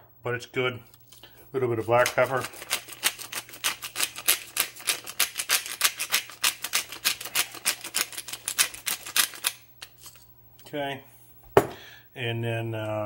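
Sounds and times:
pepper mill grinding: 0.9 - 10.3.

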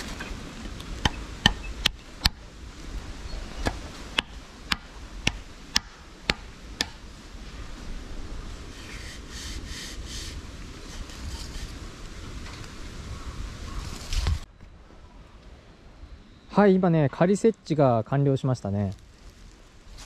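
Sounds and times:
soft scratchy rustling: 18.7 - 20.0.

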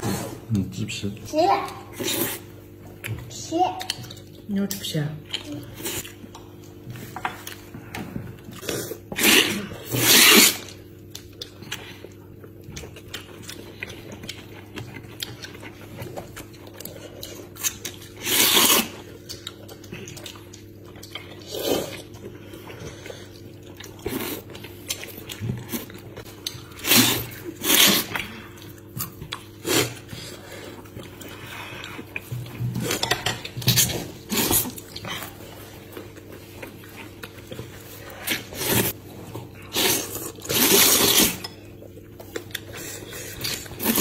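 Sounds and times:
steady low hum: 0.0 - 44.0
chewing: 1.7 - 44.0
noodles being slurped: 8.6 - 10.8, 17.7 - 20.0, 23.2 - 28.6, 29.5 - 41.5, 42.4 - 44.0.

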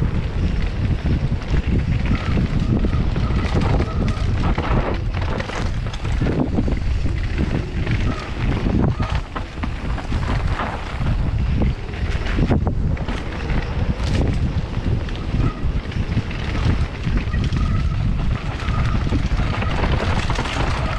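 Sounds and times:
wind buffeting microphone: 0.0 - 20.9
clattering knocks and rattles: 1.4 - 14.6, 16.2 - 20.9.

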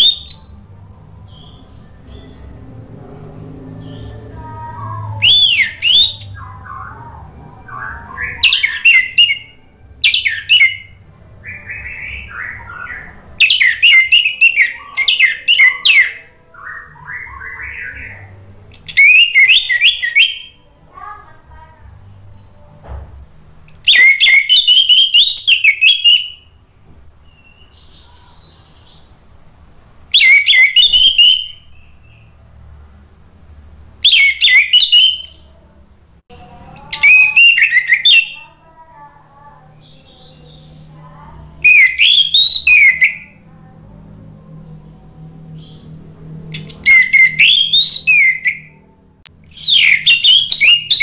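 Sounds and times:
thrush singing whistled phrases: 0.0 - 0.7, 3.7 - 20.6, 23.8 - 26.6, 30.1 - 32.3, 34.0 - 35.6, 36.7 - 38.6, 39.7 - 43.5, 44.6 - 48.9, 49.5 - 51.0
quiet low bird notes: 0.0 - 51.0.

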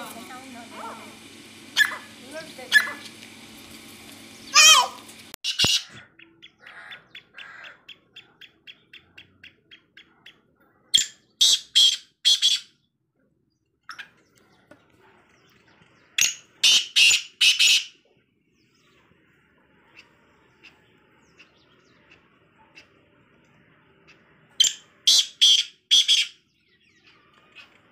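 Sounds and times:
francolins calling: 0.0 - 3.1, 4.3 - 10.4, 16.2 - 18.0, 24.0 - 27.9.

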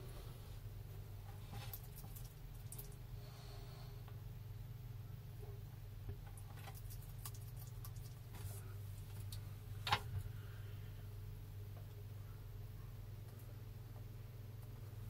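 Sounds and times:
steady low hum: 0.0 - 15.0
lizard chewing with soft crunches: 1.2 - 3.2, 6.1 - 10.7.

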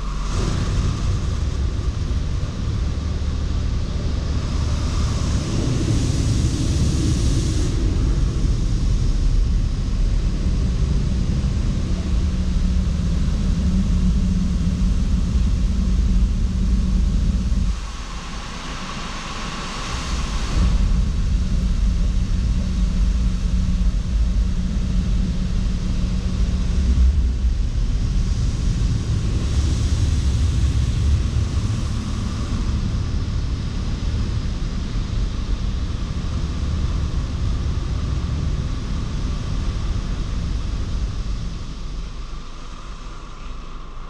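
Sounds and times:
car wash machinery rumble: 0.0 - 44.0.

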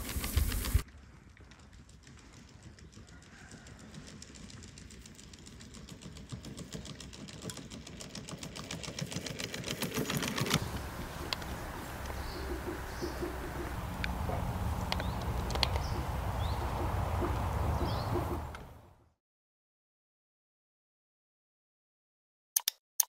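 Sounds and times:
low steady hum: 10.6 - 18.8.

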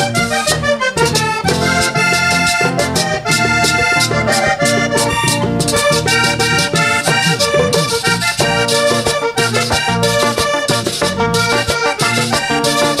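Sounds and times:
button accordion: 0.0 - 13.0
electric bass: 0.0 - 13.0
hand drum: 1.1 - 13.0.

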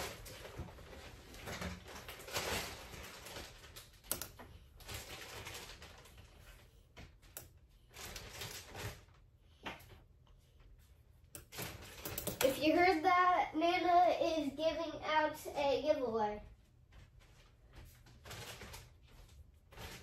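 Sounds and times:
rustling: 0.0 - 12.1, 16.4 - 20.0.

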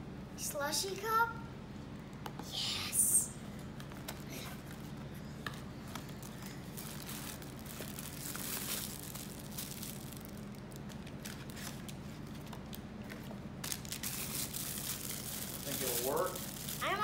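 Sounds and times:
cardboard and plastic bag rustling: 3.7 - 17.0.

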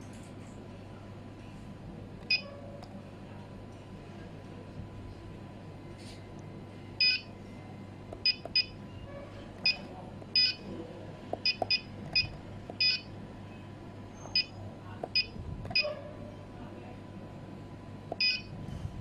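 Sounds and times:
short electronic beeps: 7.0 - 7.3, 18.2 - 18.5.

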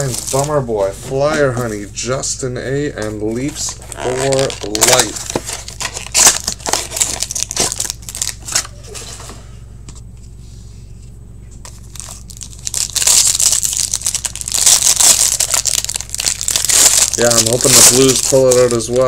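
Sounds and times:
foil wrapper crinkling and tearing: 0.0 - 0.6, 3.7 - 8.7, 11.7 - 19.0.

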